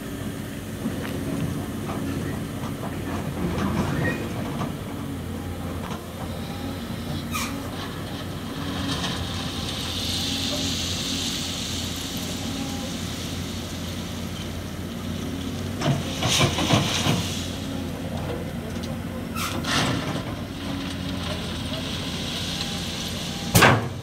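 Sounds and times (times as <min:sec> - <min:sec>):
steady engine hum: 0:00.0 - 0:24.0
hiss: 0:06.8 - 0:18.0, 0:20.9 - 0:24.0.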